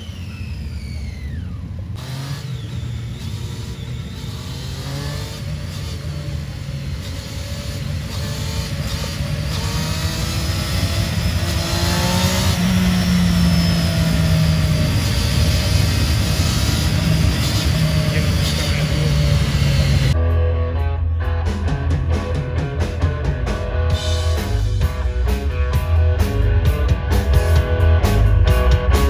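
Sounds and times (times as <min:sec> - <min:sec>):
motorcycle engine revving: 0:00.0 - 0:20.2.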